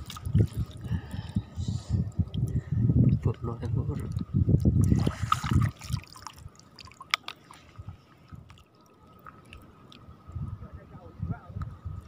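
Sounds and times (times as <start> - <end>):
water splashing and dripping: 0.0 - 0.9, 3.9 - 10.1.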